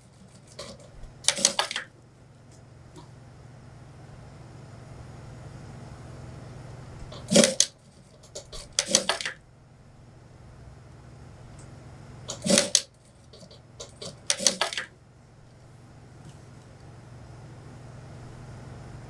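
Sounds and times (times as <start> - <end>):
sewing machine stitching clatter: 12.3 - 14.9.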